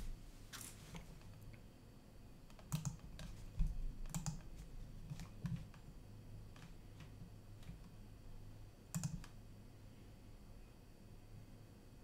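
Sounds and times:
faint low hum: 0.0s - 12.0s
mouse and keyboard clicks: 2.5s - 5.9s, 8.9s - 9.4s.

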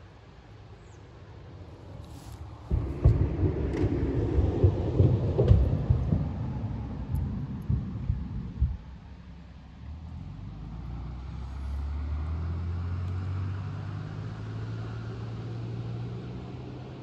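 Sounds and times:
passing vehicle engine drone: 9.6s - 17.0s.

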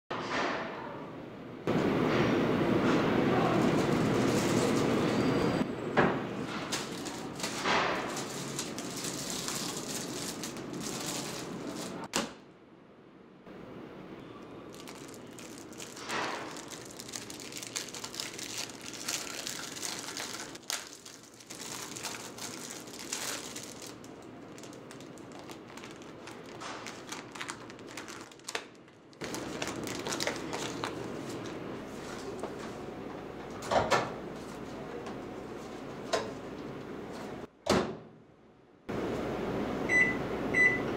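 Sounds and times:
plastic wrapper crinkling: 6.7s - 12.1s, 14.7s - 31.6s.

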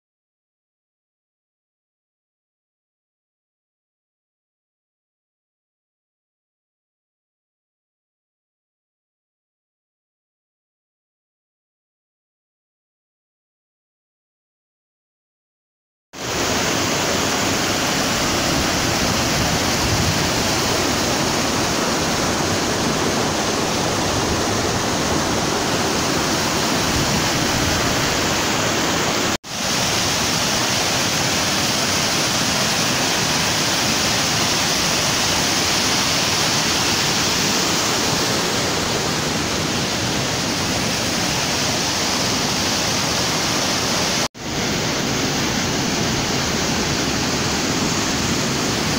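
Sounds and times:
water rushing over rapids: 16.2s - 48.9s.

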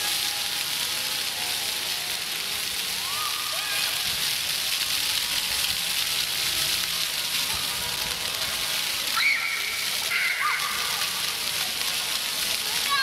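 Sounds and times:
fountain jets splashing on paving: 0.0s - 13.0s
children calling: 9.1s - 11.2s.

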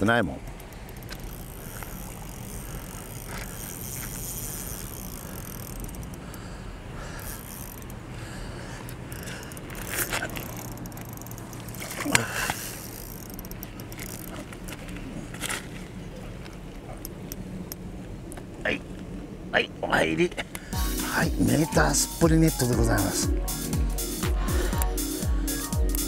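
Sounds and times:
steady low hum: 0.0s - 18.4s.

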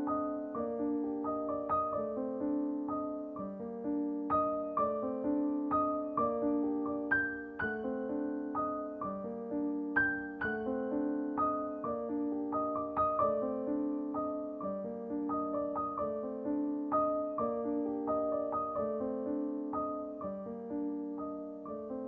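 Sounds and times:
slow piano music: 0.0s - 22.0s.

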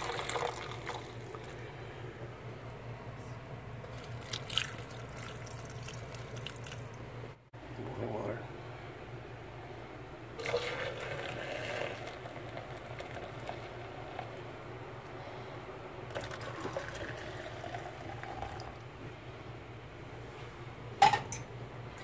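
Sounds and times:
hot water pouring into cups: 0.0s - 1.6s, 3.9s - 7.0s, 10.4s - 14.5s, 16.1s - 18.9s.

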